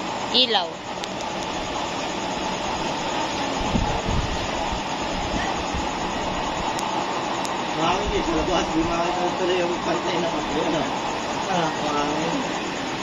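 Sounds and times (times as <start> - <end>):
burner stoves rushing: 0.0 - 13.0
wind thumps on microphone: 3.5 - 6.8.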